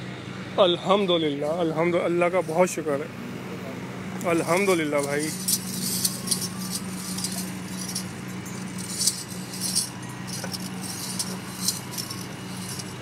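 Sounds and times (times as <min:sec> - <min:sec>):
steady low hum: 0:00.0 - 0:13.0
small metal bells jingling: 0:04.2 - 0:13.0.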